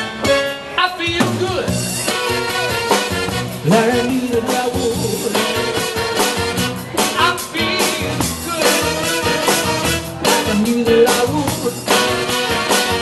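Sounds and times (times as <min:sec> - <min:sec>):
drum kit: 0:00.0 - 0:13.0
keyboard: 0:00.0 - 0:13.0
saxophone: 0:02.1 - 0:04.2, 0:05.4 - 0:07.0, 0:08.5 - 0:10.2, 0:11.9 - 0:13.0.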